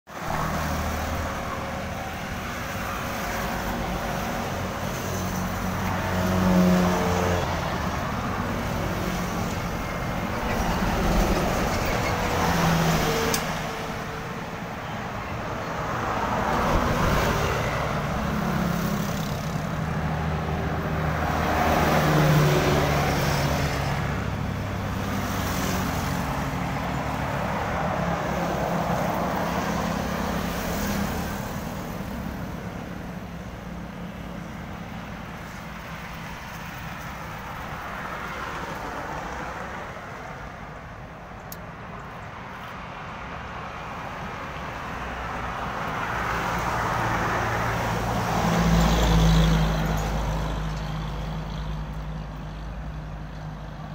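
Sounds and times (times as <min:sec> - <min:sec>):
road traffic passing: 0:00.1 - 0:53.9.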